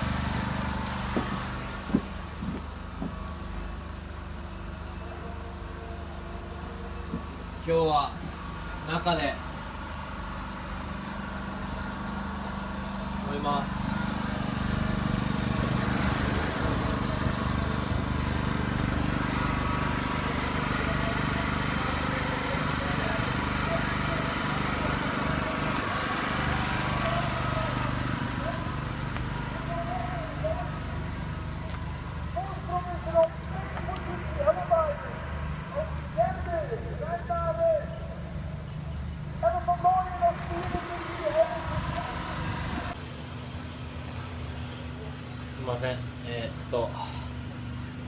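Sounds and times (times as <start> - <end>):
small engine humming: 0.0 - 48.0.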